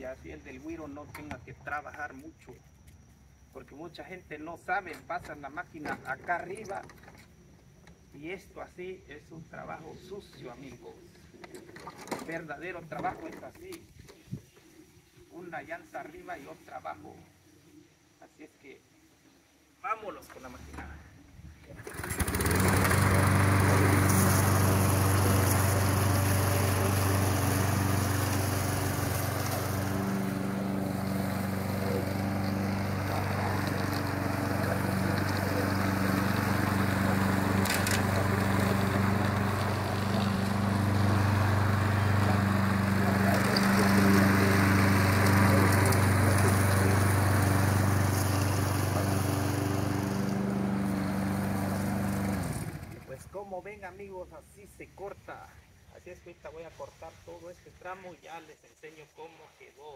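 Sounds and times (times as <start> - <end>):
lawn mower engine running: 21.7 - 53.1.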